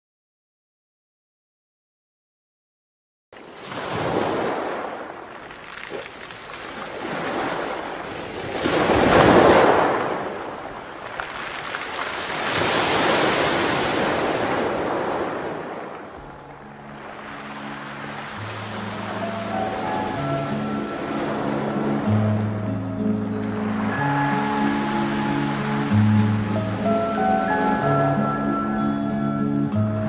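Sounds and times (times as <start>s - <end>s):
waves washing onto pebble beach: 3.4s - 22.5s, 23.3s - 28.3s.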